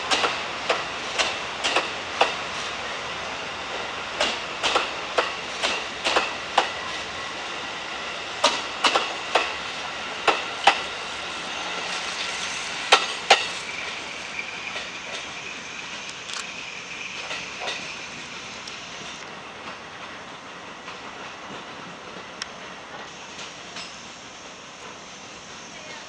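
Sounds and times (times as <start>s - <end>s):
train wheels clacking over rail joints: 0.0s - 2.8s, 3.7s - 7.0s, 8.4s - 9.6s, 10.2s - 11.0s, 11.8s - 14.0s, 14.6s - 18.0s, 18.7s - 24.2s.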